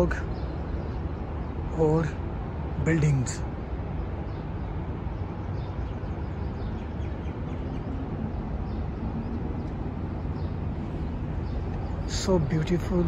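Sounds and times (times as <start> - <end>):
low city rumble: 0.0 - 13.0
bird chirps: 4.0 - 13.0.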